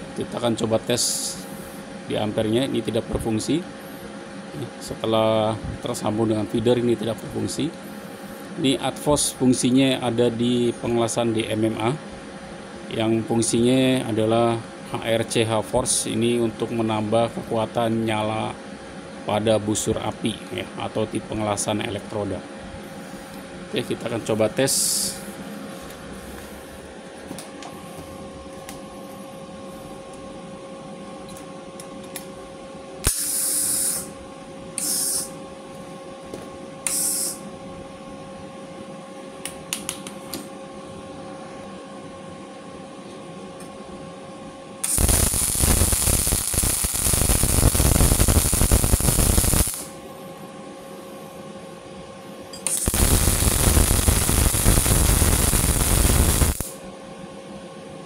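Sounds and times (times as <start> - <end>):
welding machine humming: 0.0 - 2.3, 24.7 - 28.9, 33.0 - 37.5, 44.8 - 50.2, 52.3 - 56.9
welding arc crackling: 33.0 - 34.1, 34.8 - 35.3, 36.9 - 37.4, 44.8 - 50.0, 52.6 - 56.8.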